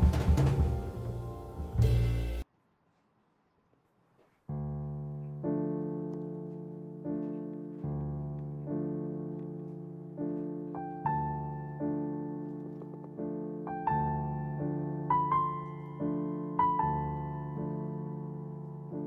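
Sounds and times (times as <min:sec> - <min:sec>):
background music track: 0:00.0 - 0:02.4.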